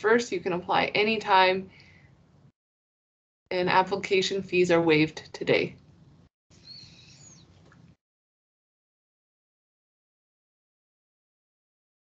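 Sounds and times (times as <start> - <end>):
faint high chirp: 6.6 - 7.6.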